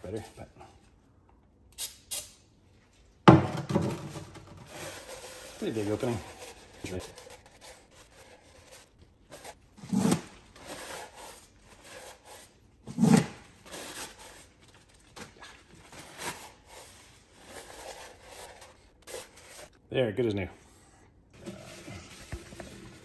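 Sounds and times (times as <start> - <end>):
paper towel rubbing: 4.7 - 12.5.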